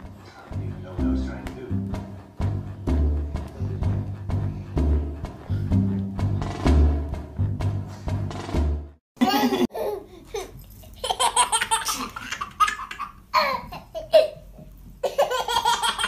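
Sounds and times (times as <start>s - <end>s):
baby laughing: 9.2s - 14.4s, 15.0s - 16.0s.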